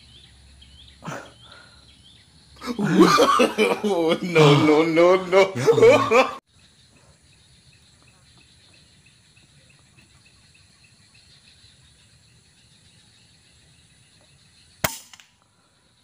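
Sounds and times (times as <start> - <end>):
insect chirping: 0.0 - 16.0
rifle shot: 14.8 - 15.2.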